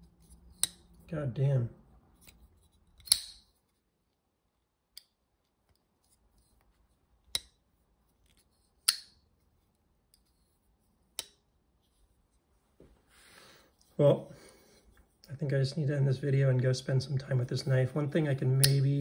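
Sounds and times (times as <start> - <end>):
folding knife clicking: 3.0 - 3.5, 8.8 - 9.2, 18.6 - 18.8.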